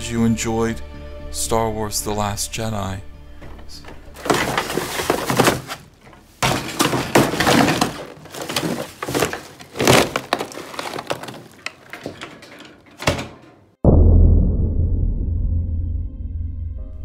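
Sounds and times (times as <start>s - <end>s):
bin lid knock: 3.4s - 13.6s
cardboard and plastic bag crunching: 3.5s - 12.7s.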